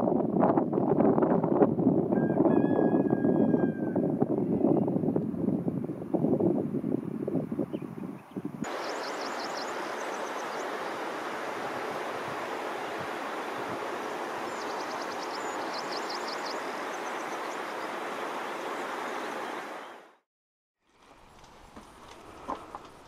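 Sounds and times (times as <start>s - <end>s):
rushing water or air: 8.6s - 20.2s.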